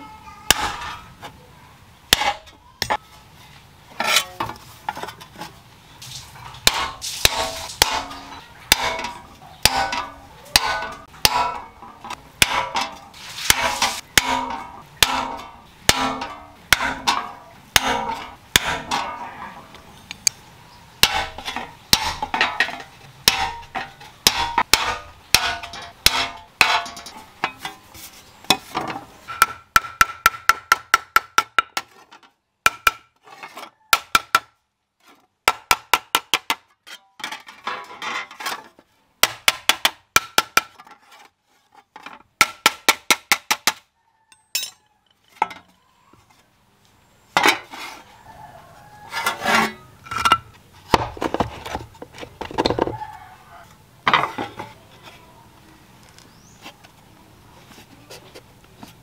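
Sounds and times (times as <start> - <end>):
hammer striking metal: 6.6 - 11.8, 12.4 - 19.2, 44.5 - 44.8.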